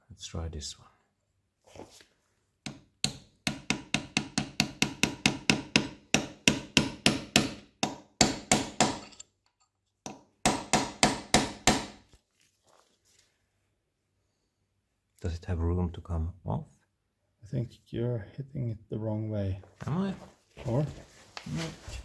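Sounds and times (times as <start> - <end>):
hammer tapping metal punch: 2.6 - 9.2.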